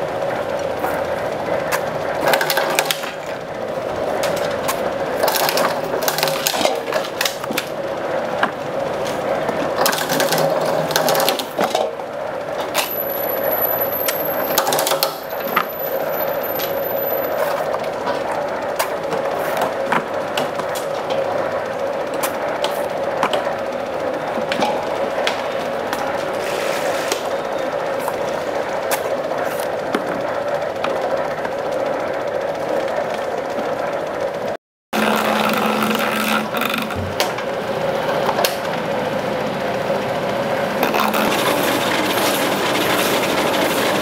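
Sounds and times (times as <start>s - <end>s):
steady hum: 0.0s - 44.0s
scraping strokes: 26.3s - 27.2s.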